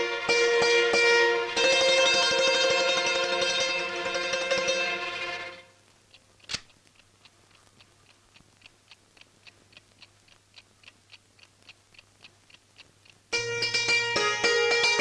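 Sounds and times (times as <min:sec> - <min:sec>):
faint clock-like ticking: 0:05.5 - 0:15.0
sharp click: 0:06.1 - 0:07.7.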